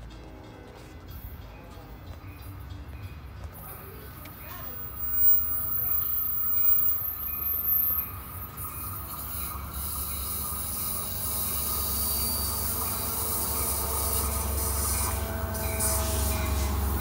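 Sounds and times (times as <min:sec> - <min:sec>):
train wheels rumbling on rail: 0:00.0 - 0:17.0
high hiss: 0:04.6 - 0:17.0
thin wheel squeals: 0:04.6 - 0:17.0.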